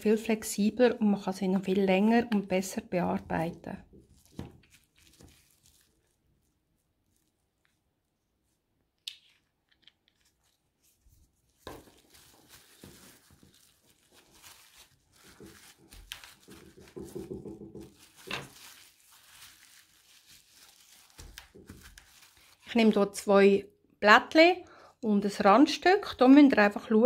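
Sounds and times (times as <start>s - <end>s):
plastic film crinkling: 3.8s - 23.0s.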